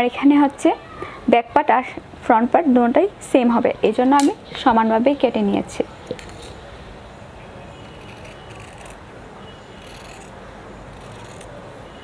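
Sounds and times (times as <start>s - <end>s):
scissors snipping fabric: 7.9s - 9.0s, 9.8s - 11.6s.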